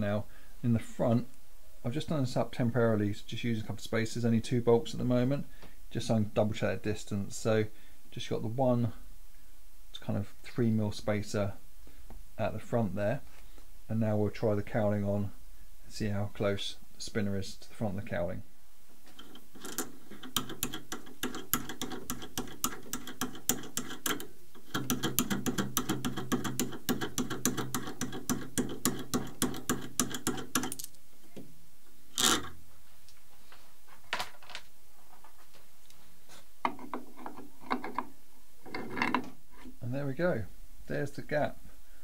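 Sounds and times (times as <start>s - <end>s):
rapid metallic clicking: 19.2s - 31.0s.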